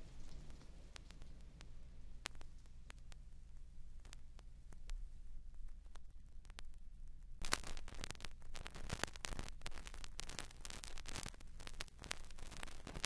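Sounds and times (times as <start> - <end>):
low steady hum: 0.0 - 13.0
record surface hiss: 0.0 - 13.0
vinyl clicks and pops: 0.2 - 5.0, 7.4 - 13.0.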